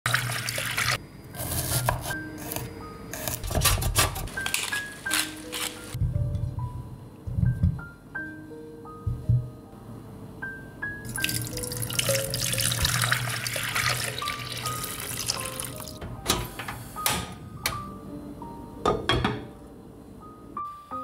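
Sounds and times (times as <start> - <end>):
water pouring into a pot: 0.1 - 1.0, 11.1 - 16.0.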